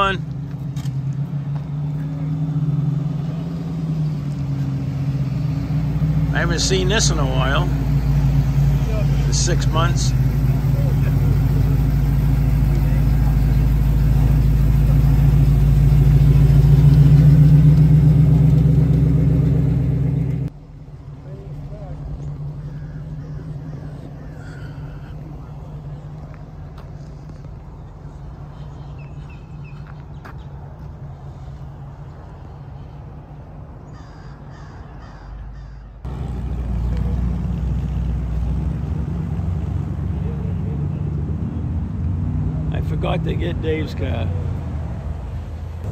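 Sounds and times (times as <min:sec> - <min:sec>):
car engine rumbling: 0:00.0 - 0:45.9
crow cawing: 0:22.6 - 0:25.3, 0:33.9 - 0:36.0.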